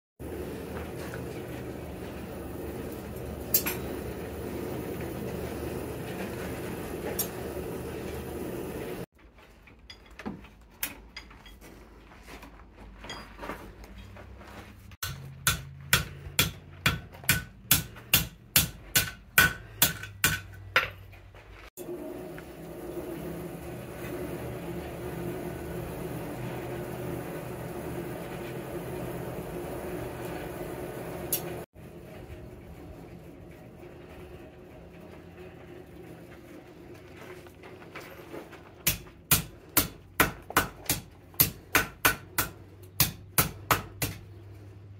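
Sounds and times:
coal forge rushing drone: 0.2 - 9.1, 21.8 - 43.2
hammer striking horseshoe on anvil: 15.0 - 21.0, 38.8 - 44.3.

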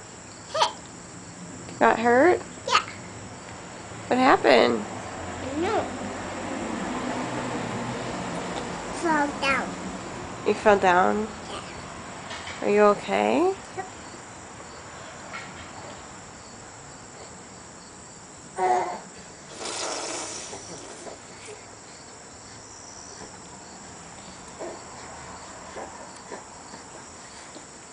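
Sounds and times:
insects chirring: 0.0 - 6.0, 6.9 - 27.9
small child vocalizing: 0.5 - 0.8, 2.7 - 2.9, 11.5 - 11.8, 18.6 - 19.1
child biting into tomato: 19.5 - 21.3.

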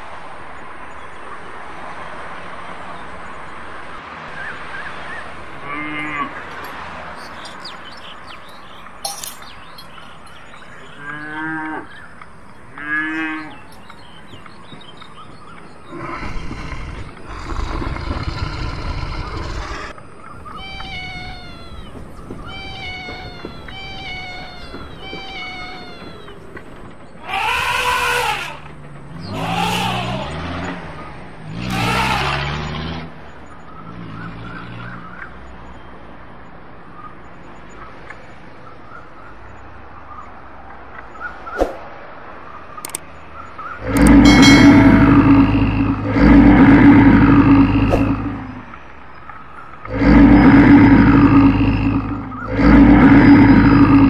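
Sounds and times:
rough animal noise: 5.2 - 33.0, 43.6 - 54.0
loud animal calls: 15.2 - 33.0, 43.6 - 48.8, 49.5 - 54.0
animal cries: 15.9 - 30.8, 31.6 - 32.7, 43.7 - 48.6
short falling chirps: 20.5 - 26.8.

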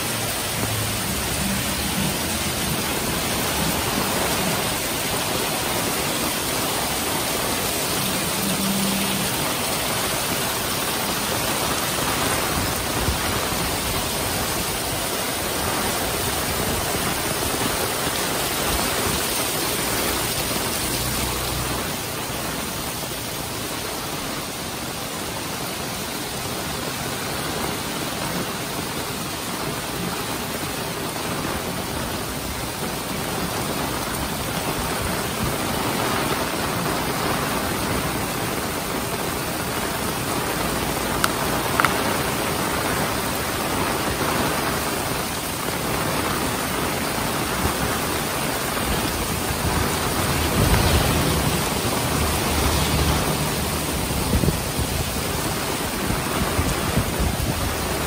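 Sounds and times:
heavy rain hissing: 0.0 - 58.0.

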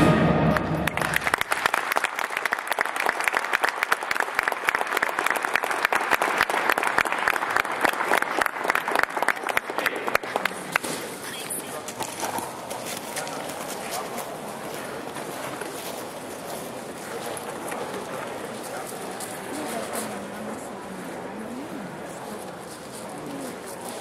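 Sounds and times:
brass band chord: 0.0 - 0.9
audience applauding: 0.5 - 11.4.

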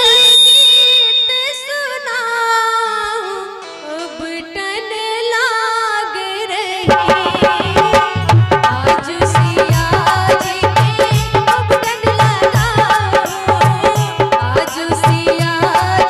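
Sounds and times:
woman singing into microphone: 1.2 - 16.0
drums with deep bass thumps: 6.9 - 16.0.

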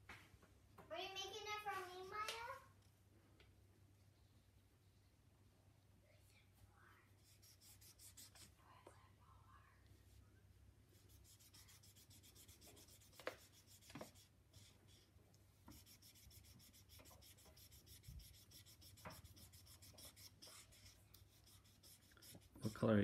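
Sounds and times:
marker rubbing on paper: 7.2 - 8.6, 11.0 - 15.1, 15.7 - 22.9.

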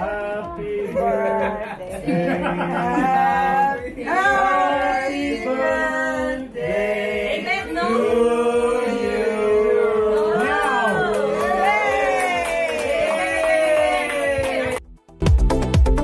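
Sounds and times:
group singing birthday song: 0.0 - 12.3.

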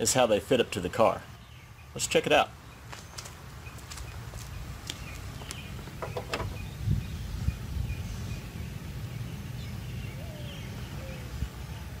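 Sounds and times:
wind rumbling on microphone: 3.6 - 12.0
dull thump: 5.8 - 6.6.

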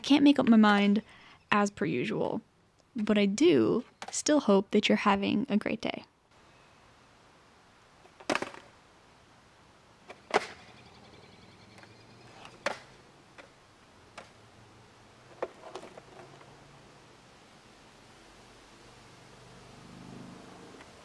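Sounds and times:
skateboard clacking on asphalt: 11.8 - 14.4.

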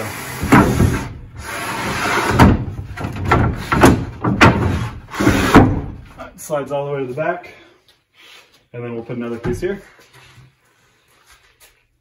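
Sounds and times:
plywood scraping on wood: 0.0 - 6.2
sharp wooden knocks: 2.4 - 6.0.

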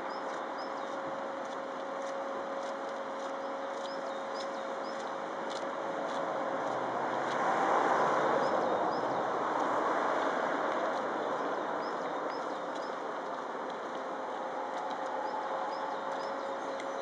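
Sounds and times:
small birds chirping: 0.0 - 5.8, 8.2 - 9.4, 10.8 - 13.9, 14.7 - 17.0.

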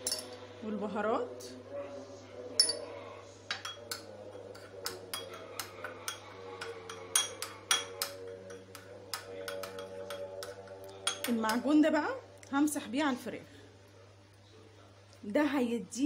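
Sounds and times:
spoon clinking on porcelain plate: 0.0 - 0.4, 2.6 - 2.9, 3.5 - 11.8.

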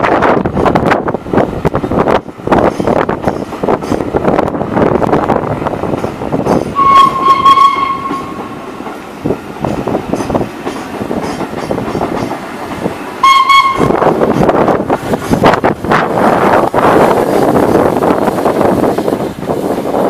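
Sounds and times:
railway coaches rumbling: 0.0 - 20.0
wheels clicking over rail joints: 5.8 - 20.0
steam locomotive whistle: 6.8 - 8.6, 13.2 - 14.1.

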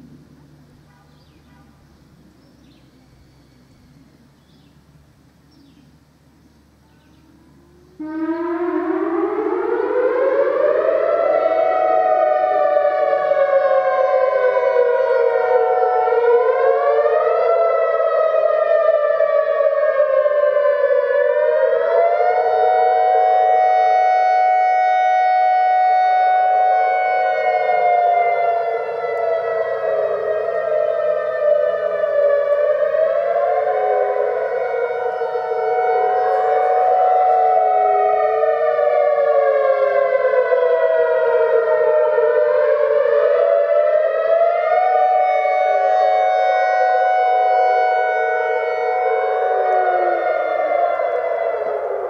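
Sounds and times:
warning sirens rising and falling: 6.1 - 52.0.

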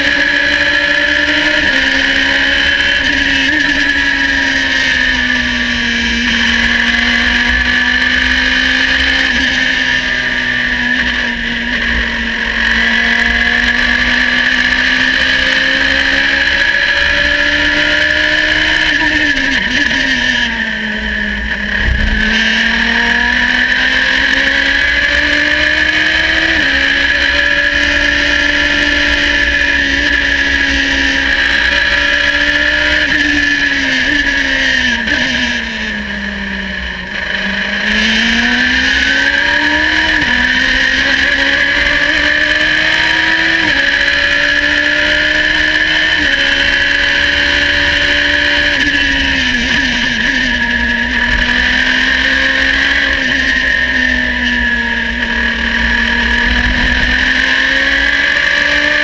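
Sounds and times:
race car engine running hard: 0.0 - 59.0
low thump: 21.7 - 22.8.

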